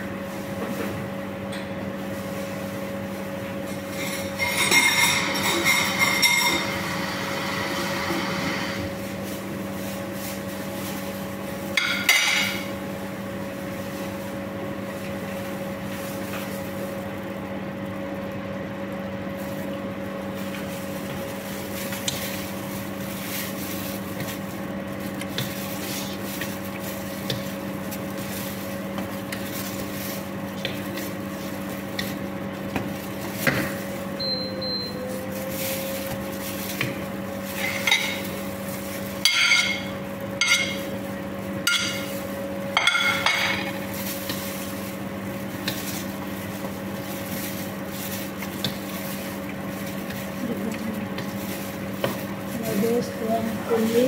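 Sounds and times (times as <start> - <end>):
kitchen appliance humming: 0.0 - 54.0
wooden spoon stirring in pot: 41.6 - 54.0.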